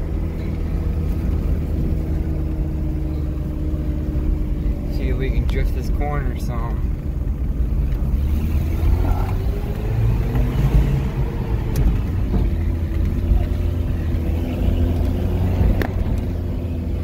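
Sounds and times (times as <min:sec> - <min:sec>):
heavy rumble over rough ground: 0:00.0 - 0:17.0
truck engine revving high: 0:06.8 - 0:17.0.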